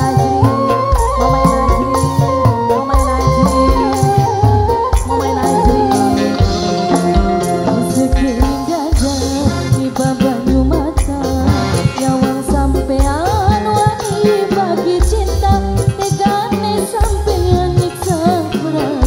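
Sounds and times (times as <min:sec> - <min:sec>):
person singing: 0:00.0 - 0:19.0
sliding melody with bass and drums: 0:00.0 - 0:19.0.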